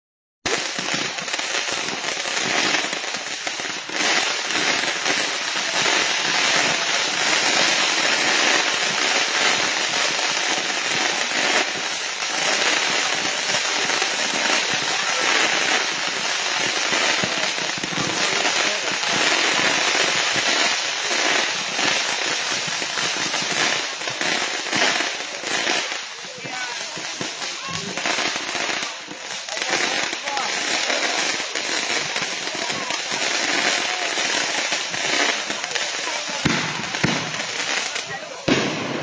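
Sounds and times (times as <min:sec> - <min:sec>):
firework crackle: 0:00.4 - 0:39.0.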